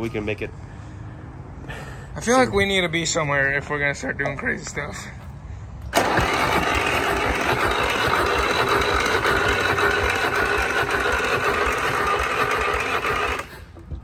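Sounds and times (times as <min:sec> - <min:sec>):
starter motor cranking diesel engine: 0:05.9 - 0:13.8.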